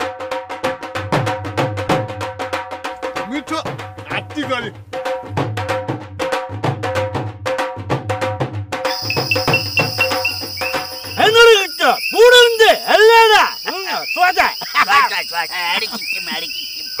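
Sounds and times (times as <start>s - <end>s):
drum and wood block beat: 0.0s - 17.0s
cricket trill: 8.9s - 17.0s
loud rising and falling calls: 8.9s - 17.0s.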